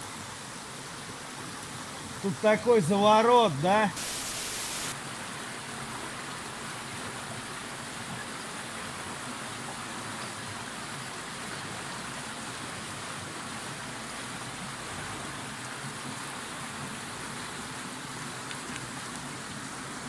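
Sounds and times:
water rushing from pipes: 0.0s - 20.0s
static-like hiss: 2.2s - 5.0s.

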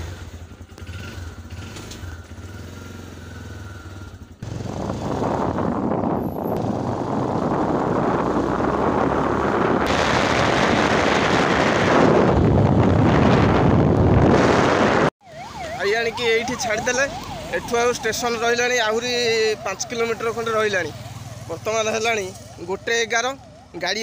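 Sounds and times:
motorcycle engine humming: 0.0s - 23.8s
motorcycle road noise: 0.0s - 24.0s
wind rush on microphone: 4.4s - 15.1s.

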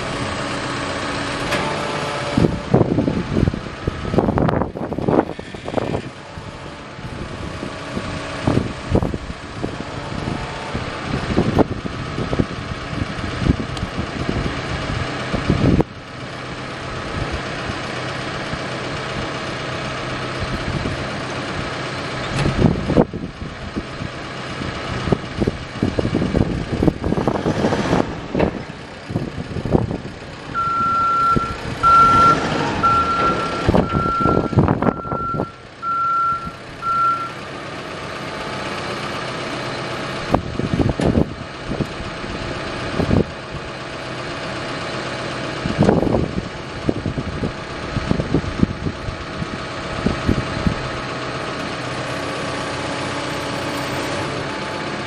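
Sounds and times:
diesel engine running: 0.0s - 55.0s
reversing alarm beeping: 30.5s - 37.4s.

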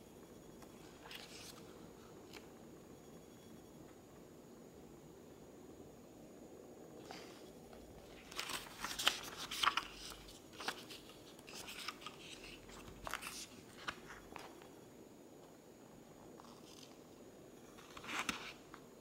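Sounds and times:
book pages turning: 1.0s - 1.7s, 8.0s - 14.7s, 17.7s - 18.6s.

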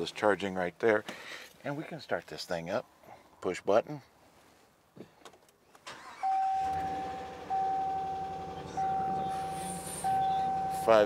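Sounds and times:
car engine starting and idling: 5.8s - 11.0s
dashboard chime tone: 7.5s - 11.0s.

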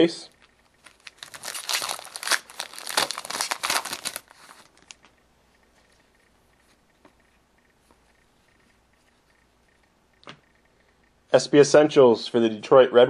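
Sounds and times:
foil wrapper crinkling and tearing: 0.7s - 5.1s.

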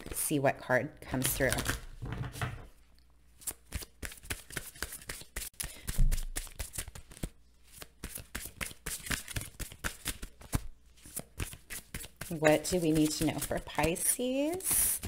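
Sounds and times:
cards being shuffled: 3.4s - 15.0s.

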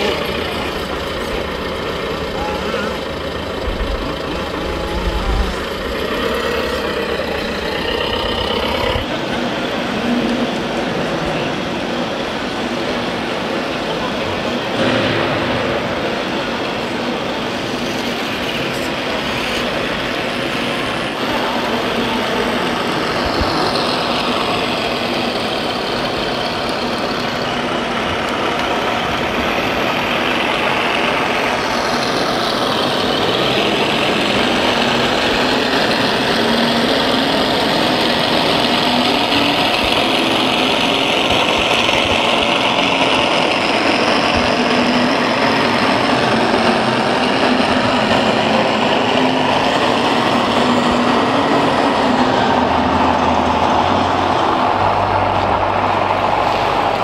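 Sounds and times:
model truck motor: 0.0s - 11.2s, 17.1s - 57.0s.

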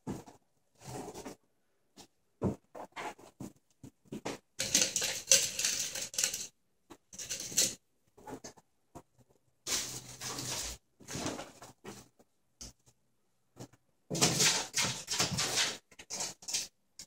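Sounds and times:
ferrets scampering and scratching: 14.2s - 16.8s.

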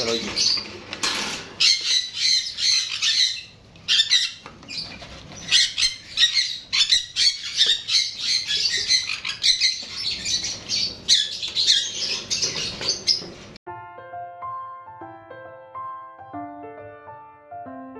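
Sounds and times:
caged birds calling: 0.0s - 13.6s.

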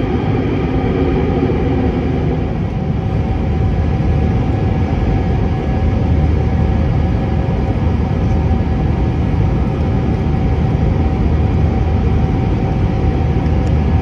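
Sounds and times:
rushing air: 0.0s - 4.5s
faint whining tones: 0.0s - 7.6s
jet engines rumbling: 0.0s - 14.0s.

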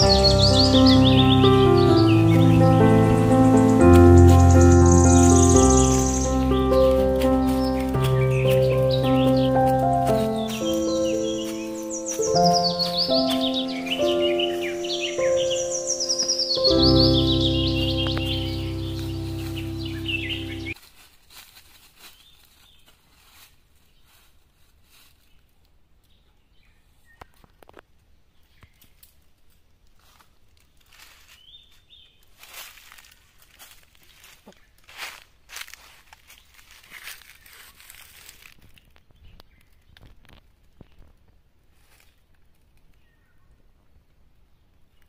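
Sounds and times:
background music: 0.0s - 20.8s
rustling of dry leaves: 0.0s - 43.5s.

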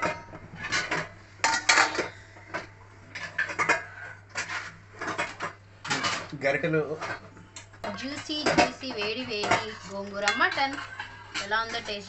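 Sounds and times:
utensils scraping metal pot: 8.0s - 12.0s.

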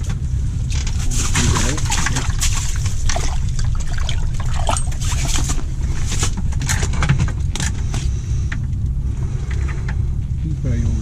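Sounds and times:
steady low rumble: 0.0s - 11.0s
water splashing and dripping: 1.1s - 6.4s.

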